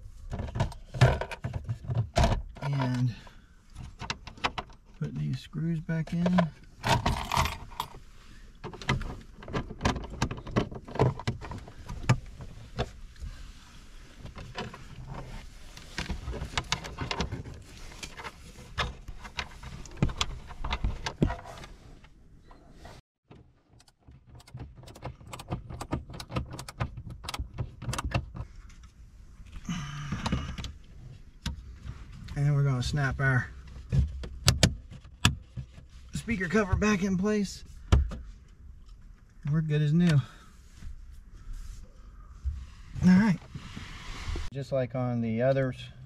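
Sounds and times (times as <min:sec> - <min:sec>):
plastic trim clicks and rattles: 0:23.7 - 0:28.4.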